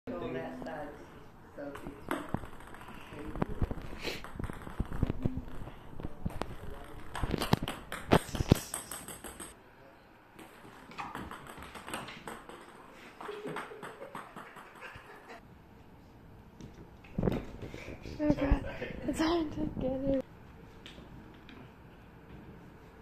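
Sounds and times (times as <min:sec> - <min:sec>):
ping pong ball on wooden floor: 0:01.7 - 0:09.6, 0:10.4 - 0:15.3.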